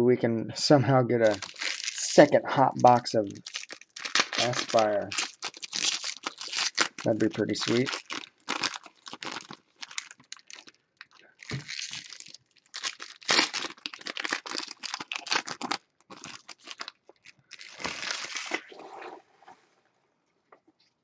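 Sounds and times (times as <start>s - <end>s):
foil wrappers crinkling and tearing: 1.2s - 18.7s.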